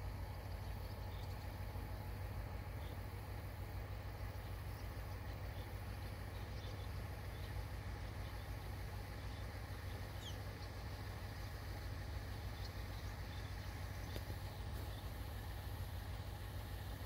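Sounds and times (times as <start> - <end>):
distant engines rumbling: 0.0 - 17.0.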